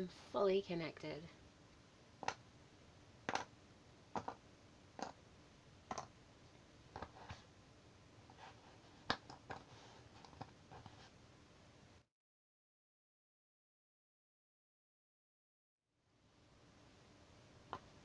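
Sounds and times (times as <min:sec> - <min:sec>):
jigsaw puzzle pieces clicking: 0:03.3 - 0:03.5.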